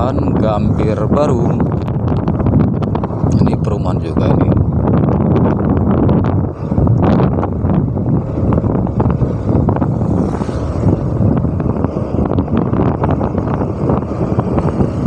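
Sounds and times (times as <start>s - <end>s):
scooter engine and tyre noise: 0.0s - 3.6s, 4.3s - 15.0s
wind buffeting microphone: 0.0s - 15.0s.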